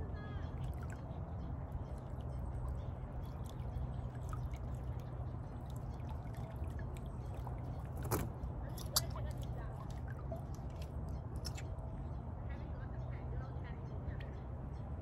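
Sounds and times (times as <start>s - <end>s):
water dripping and trickling: 0.4s - 11.8s.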